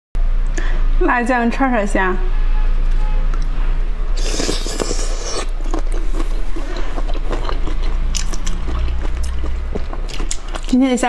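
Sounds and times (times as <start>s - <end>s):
person biting into food: 4.2s - 10.7s
chewing with small clicks: 4.4s - 11.0s.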